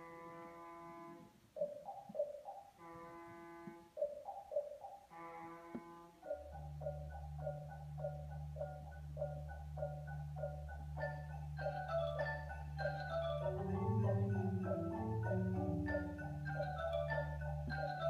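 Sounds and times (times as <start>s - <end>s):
marimba notes and chords: 6.2s - 18.0s
repeating mallet figure: 6.2s - 18.0s.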